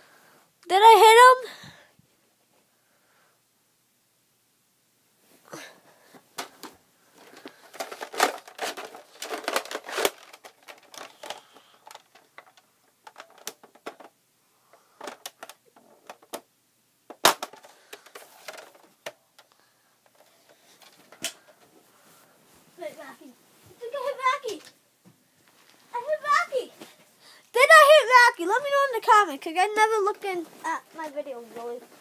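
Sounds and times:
rustling and clicking handling: 6.1s - 16.5s, 17.1s - 22.3s, 28.5s - 32.0s.

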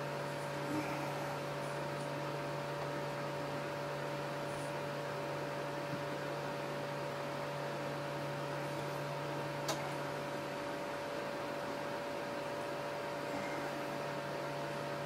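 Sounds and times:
electrical hum with hiss: 0.0s - 15.0s.

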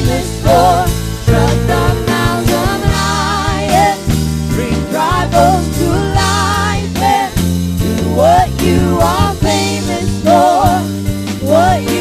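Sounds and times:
bass guitar: 0.0s - 12.0s
drum kit: 0.0s - 12.0s
singers singing with vibrato: 0.0s - 12.0s.

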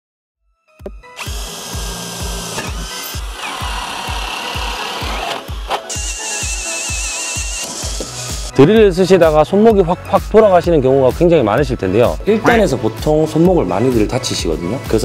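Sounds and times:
drill motor whining: 1.1s - 8.5s
music with low thumps: 7.4s - 15.0s.

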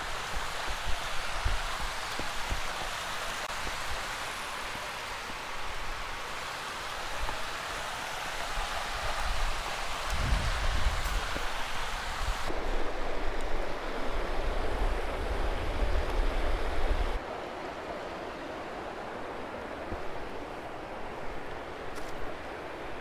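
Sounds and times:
river rushing over rocks: 0.0s - 23.0s.

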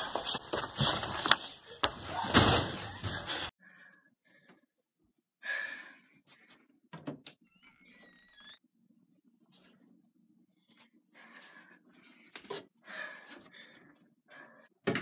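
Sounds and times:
wooden door hinge creaking: 7.0s - 8.6s.

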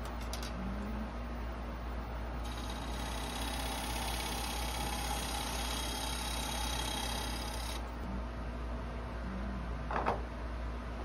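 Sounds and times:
gouge cutting spinning wood: 2.4s - 8.0s
wood lathe humming: 2.4s - 8.0s.

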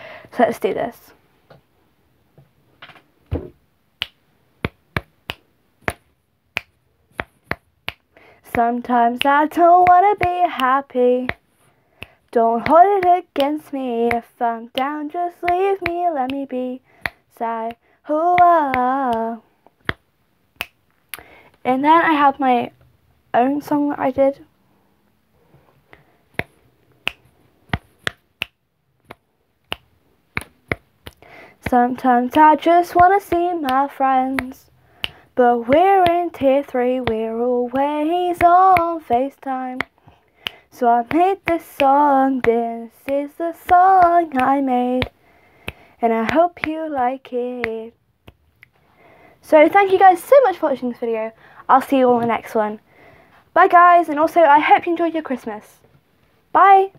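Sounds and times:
soft thump: 3.3s - 3.6s
fingers snapping: 18.4s - 20.0s, 20.6s - 21.3s, 25.9s - 31.2s, 33.3s - 36.2s.

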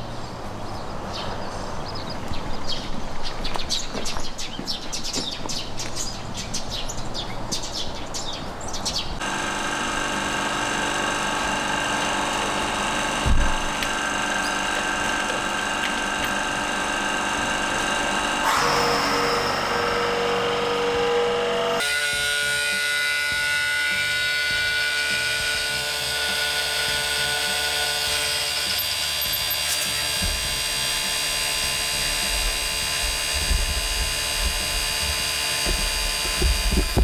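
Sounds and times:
machine motor hum: 9.2s - 37.0s.

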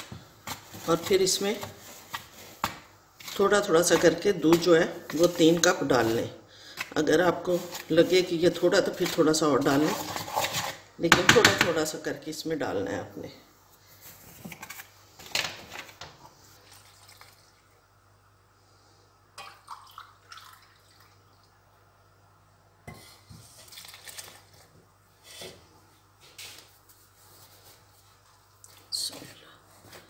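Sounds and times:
milk pouring into flour: 19.4s - 21.5s.

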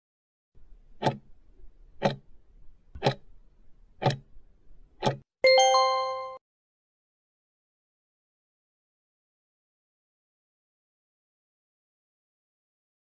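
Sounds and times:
clock ticks: 1.0s - 1.2s, 2.0s - 2.3s, 3.0s - 3.2s, 4.0s - 4.2s, 5.0s - 5.2s
loud bell chime: 5.5s - 6.4s.

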